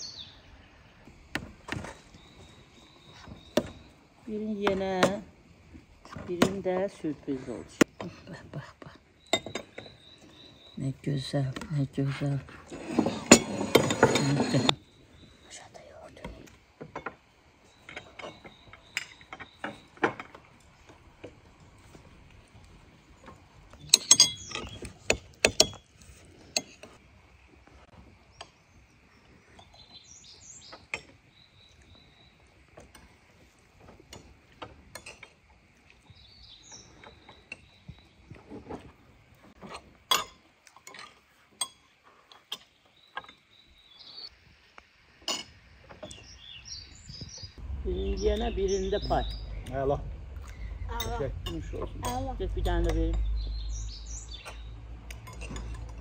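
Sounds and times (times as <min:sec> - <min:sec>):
small birds chirping: 0:00.0 - 0:39.6, 0:40.9 - 0:44.8, 0:45.9 - 0:56.0
forks clinking on plates: 0:23.9 - 0:24.8, 0:55.1 - 0:56.0.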